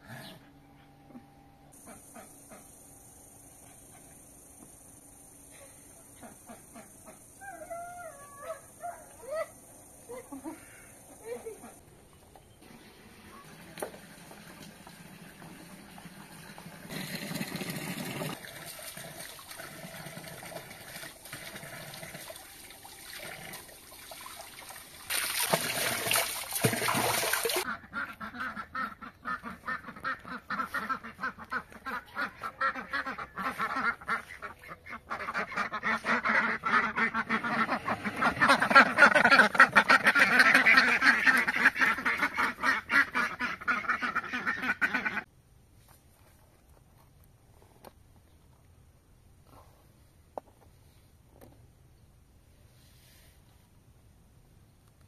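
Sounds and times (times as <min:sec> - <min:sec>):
ducks quacking: 0:27.5 - 0:45.3.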